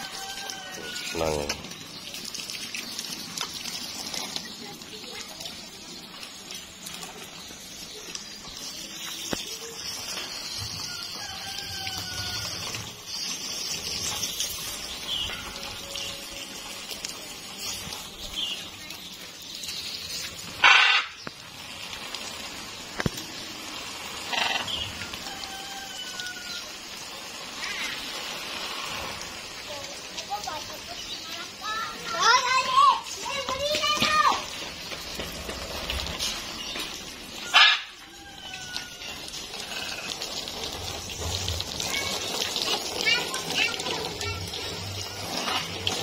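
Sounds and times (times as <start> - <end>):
water spray hissing: 0.0 - 46.0
parrot squawk: 20.6 - 21.2, 24.3 - 24.7, 37.4 - 39.0.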